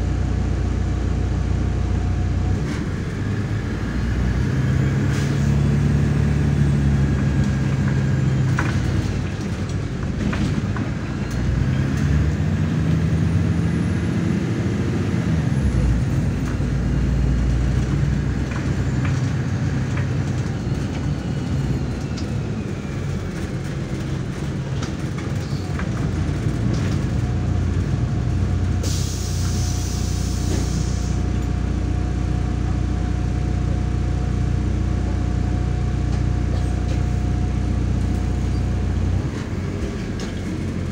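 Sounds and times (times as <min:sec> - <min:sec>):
bus diesel engine running: 0:00.0 - 0:40.9
brake air hiss: 0:28.8 - 0:31.4.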